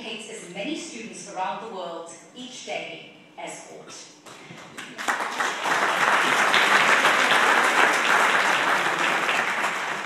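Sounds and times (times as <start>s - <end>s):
audience applauding: 4.7s - 10.0s.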